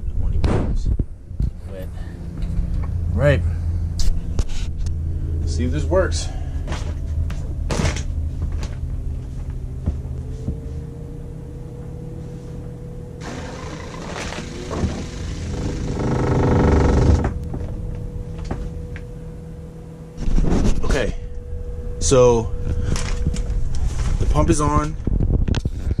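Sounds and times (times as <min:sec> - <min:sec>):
water pump humming: 0:13.2 - 0:17.6.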